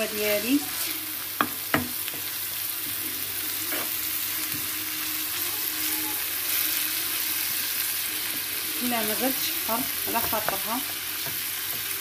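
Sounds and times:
meat sizzling in a pan: 0:00.0 - 0:12.0
utensil knocking on pan: 0:01.4 - 0:02.0.

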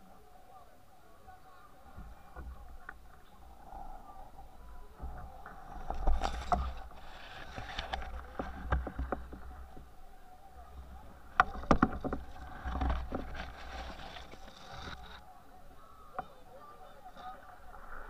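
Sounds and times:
brush scraping against canoe: 0:05.2 - 0:10.0, 0:10.6 - 0:15.3.

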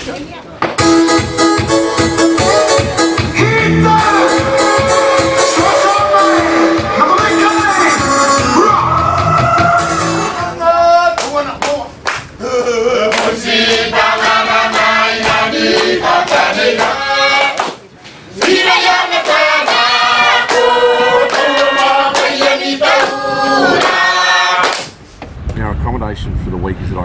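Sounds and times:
choir singing in harmony: 0:03.6 - 0:10.6, 0:12.4 - 0:17.6, 0:18.4 - 0:24.8.

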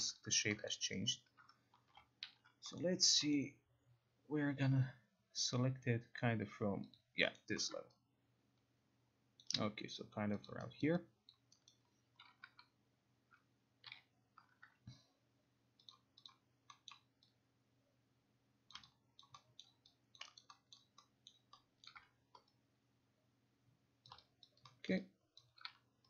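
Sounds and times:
faint low hum: 0:00.0 - 0:26.0
mouse and keyboard clicks: 0:15.8 - 0:17.4, 0:18.7 - 0:22.6, 0:24.0 - 0:25.9.

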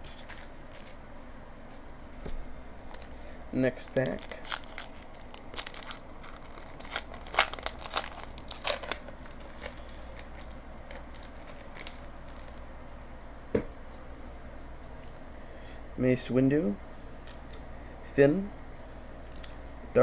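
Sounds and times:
plastic rustling: 0:00.0 - 0:01.0, 0:02.8 - 0:03.2, 0:03.8 - 0:12.6
plastic wrapper tearing and crinkling: 0:03.8 - 0:12.6.

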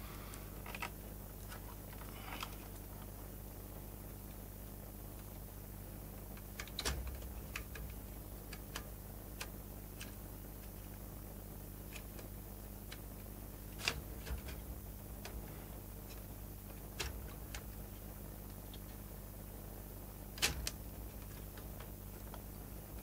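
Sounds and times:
steady low hum: 0:00.0 - 0:23.0
small clicks and taps: 0:06.3 - 0:10.8.

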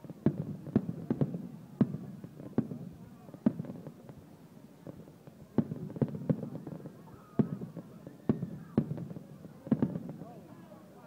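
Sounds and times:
fireworks bursting: 0:00.0 - 0:10.6.

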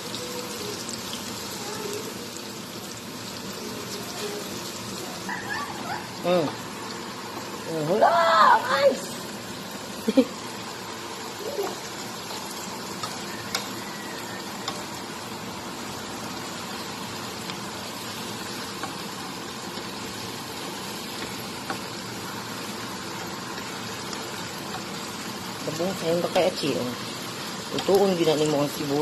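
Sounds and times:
vegetables sizzling in a frying pan: 0:00.0 - 0:29.0
wooden spatula clicking on pan: 0:13.0 - 0:13.8.

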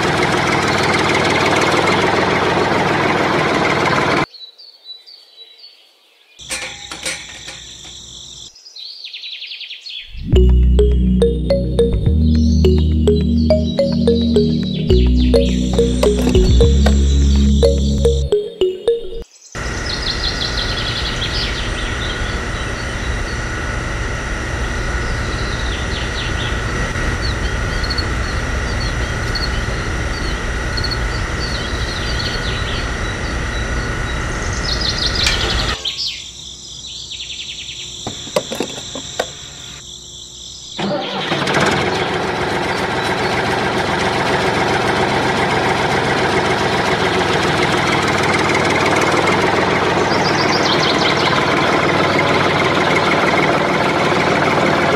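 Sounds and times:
steady motor running: 0:00.0 - 0:04.2, 0:42.0 - 0:54.9
loud steady engine: 0:00.0 - 0:04.3, 0:19.6 - 0:35.8, 0:40.8 - 0:54.9.

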